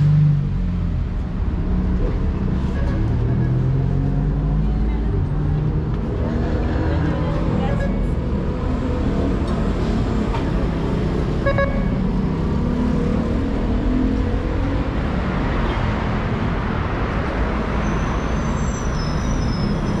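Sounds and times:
road traffic: 0.0 - 20.0
high squeal: 17.7 - 20.0.

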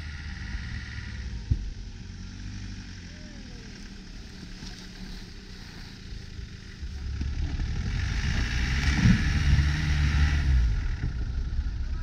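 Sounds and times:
engine pulling hard through snow: 0.0 - 12.0.

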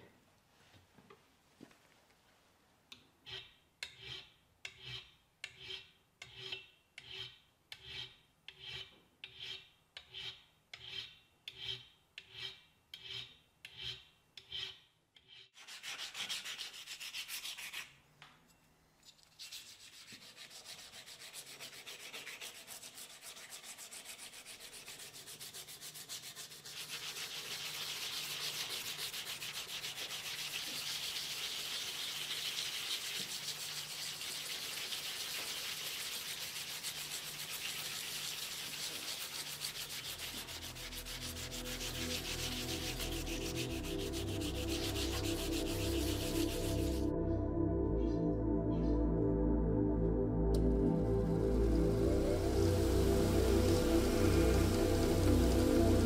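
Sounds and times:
hand file on metal: 3.2 - 17.9, 19.4 - 47.0
wet sanding metal by hand: 15.6 - 17.9, 19.4 - 47.1.

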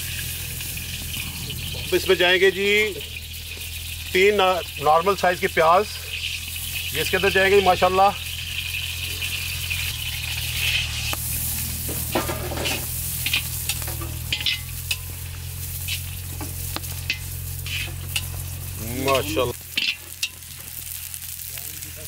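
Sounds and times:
low hum: 0.0 - 4.8
onions sizzling in hot oil: 0.0 - 22.0
metal spoon scraping pan: 8.6 - 20.5.

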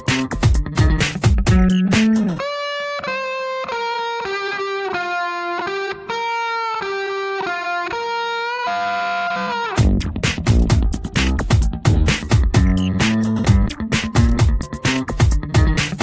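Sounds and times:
drums and bass: 0.0 - 2.4, 9.8 - 16.0
electric guitar melody: 0.0 - 16.0.

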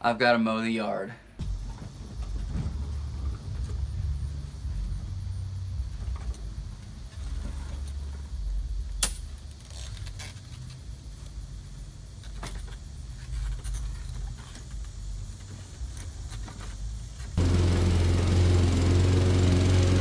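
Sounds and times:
low steady rumble: 1.4 - 10.1
lawn mower wheeled over grass: 12.3 - 20.0.

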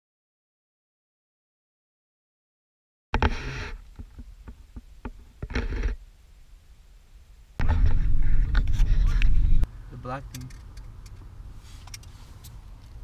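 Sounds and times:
vehicle rumble from inside cab: 7.6 - 13.0
small clicks and rustle: 10.3 - 13.0.

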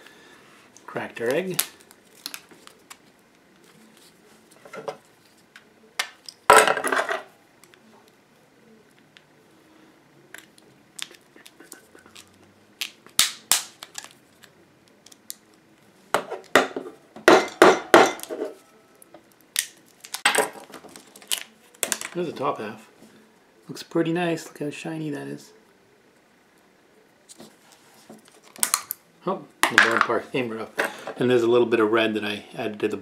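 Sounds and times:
plastic shell cracking and snapping: 19.5 - 22.2, 28.3 - 29.0.

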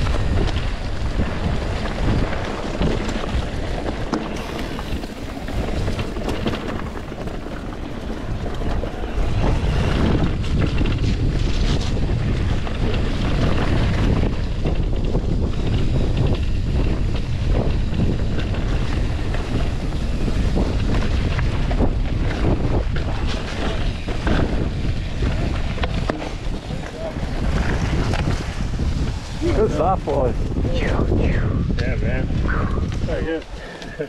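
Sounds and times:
bike tyre rumble and knocks: 0.0 - 33.5
wind rush on microphone: 0.0 - 34.0.

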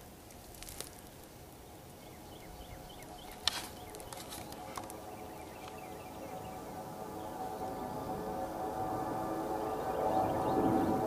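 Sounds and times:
faint steady hum: 0.0 - 11.0
dry twigs snapping: 0.2 - 1.4, 3.1 - 5.8.

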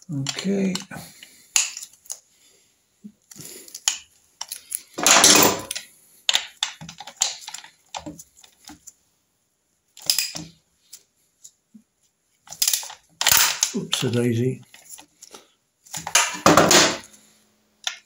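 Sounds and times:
metal tools clattering on casing: 4.4 - 5.9.

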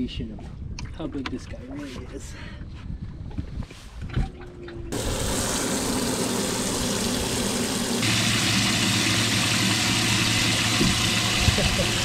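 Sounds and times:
pump running with steady hum: 4.9 - 12.0
water hissing into well: 4.9 - 12.0.

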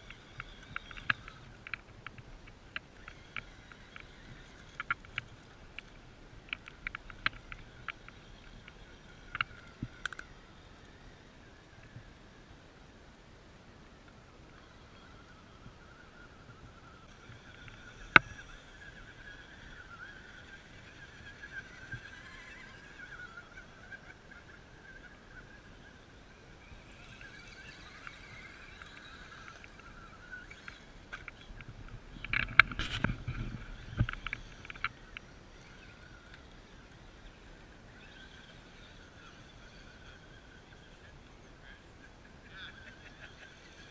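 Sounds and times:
electric motor and gear whine: 0.0 - 43.9
close knocks and scrapes: 32.2 - 34.9.

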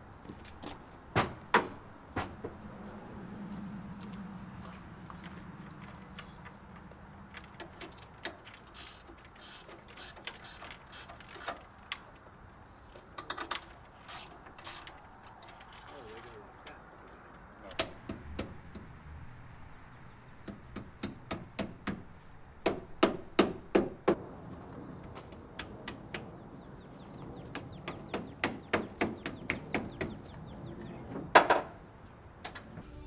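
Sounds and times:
tent frame knocking and clacking: 20.4 - 24.2.

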